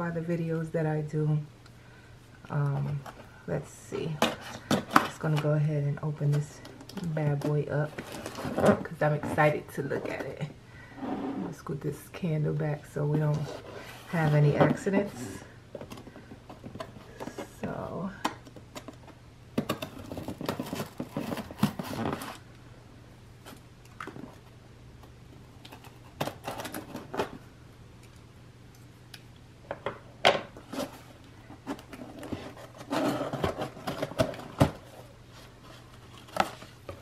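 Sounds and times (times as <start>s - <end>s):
packing paper rustling: 19.8s - 22.4s.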